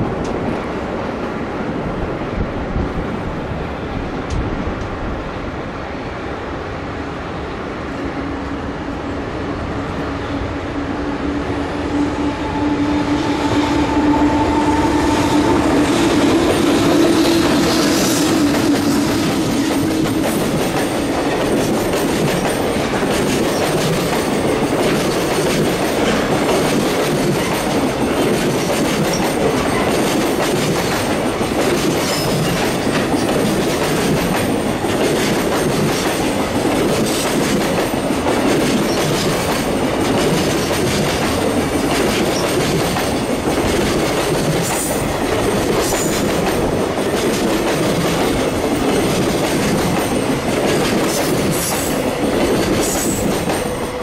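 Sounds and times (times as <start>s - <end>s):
train wheels clacking over rail joints: 14.9s - 54.0s.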